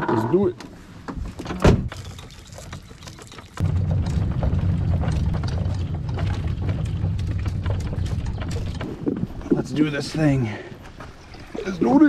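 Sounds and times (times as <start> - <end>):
cart wheels rolling over pavement: 2.0 - 10.2.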